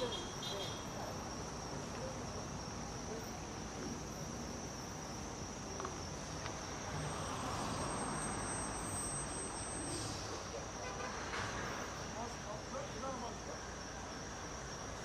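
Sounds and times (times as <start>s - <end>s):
car road and engine noise: 0.0s - 15.0s
high-pitched whine: 6.7s - 10.4s.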